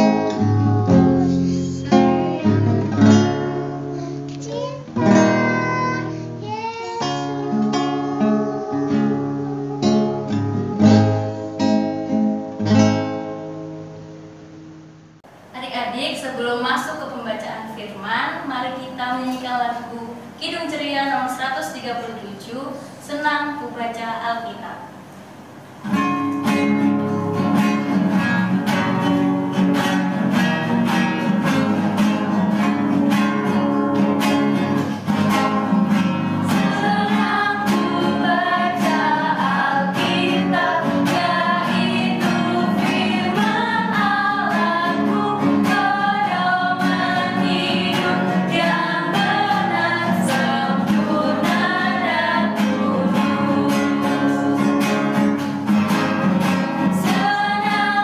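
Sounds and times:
women singing a hymn: 0:00.0 - 0:03.6, 0:35.7 - 0:55.4, 0:56.8 - 0:58.0
guitar accompaniment: 0:00.0 - 0:58.0.

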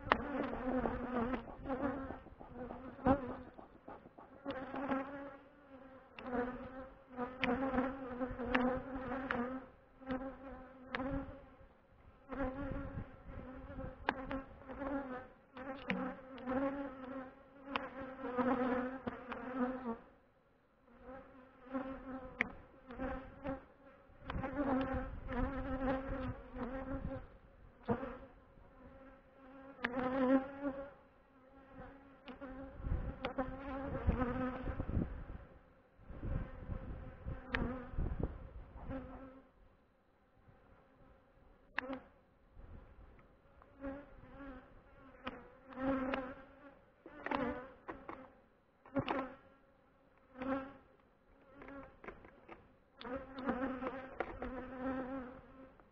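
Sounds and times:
bees buzzing: 0:00.0 - 0:11.6, 0:43.7 - 0:49.5, 0:50.3 - 0:55.8.

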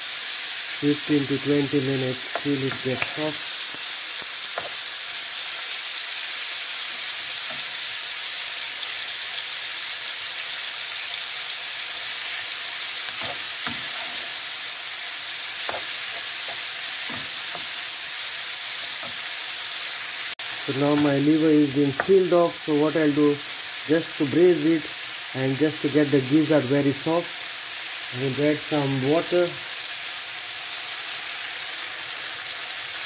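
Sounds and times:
meat sizzling in hot oil: 0:00.0 - 0:33.0
wooden spatula scraping a pan: 0:13.1 - 0:14.4.

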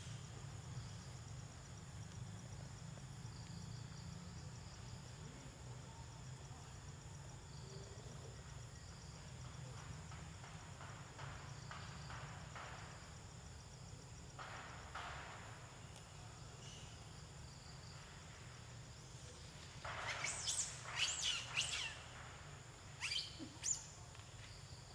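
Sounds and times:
high sweeping chirping calls: 0:20.0 - 0:22.1, 0:23.0 - 0:24.0.

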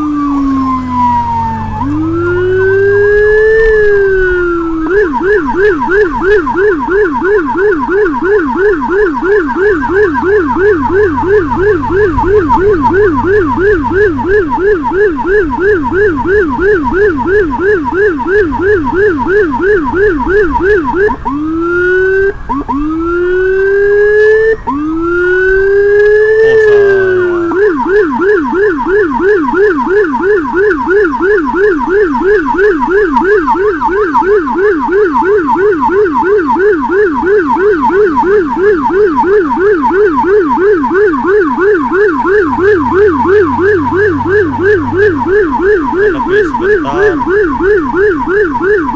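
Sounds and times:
electronic siren yelping and wailing: 0:00.0 - 0:48.9.

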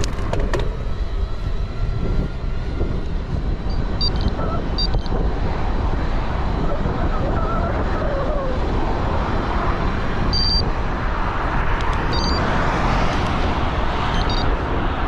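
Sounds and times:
bicycle tyre road noise: 0:00.0 - 0:15.0
passing traffic: 0:00.0 - 0:15.0
wind on microphone: 0:00.0 - 0:15.0
short high electronic beeps: 0:12.1 - 0:12.4, 0:14.1 - 0:14.5.

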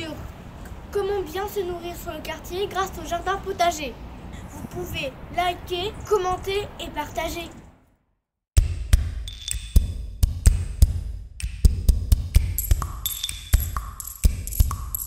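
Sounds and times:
electronic music with drum-machine beat: 0:08.6 - 0:15.0.

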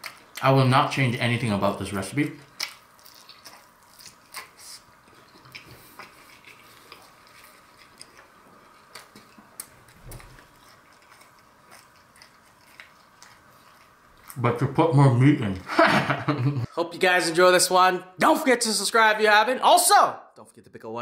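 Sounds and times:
chewing pickled pepper: 0:00.0 - 0:01.4, 0:02.3 - 0:15.7.

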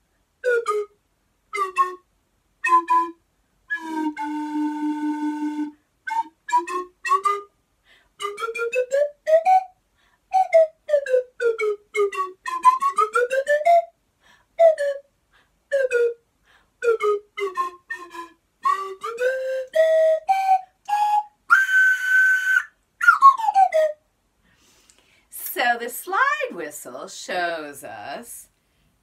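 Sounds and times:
slide whistle toots: 0:02.7 - 0:07.5, 0:17.0 - 0:24.0.

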